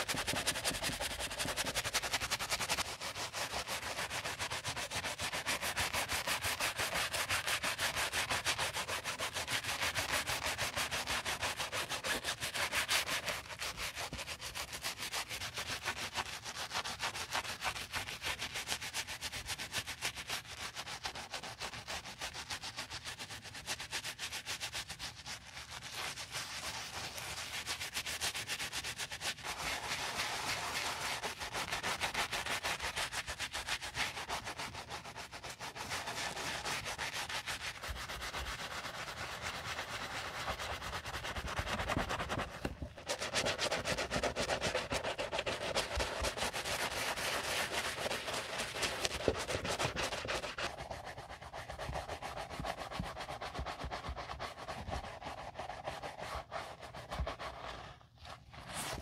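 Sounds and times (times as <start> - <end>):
brush scrubbing leather shoe: 0.0 - 59.0.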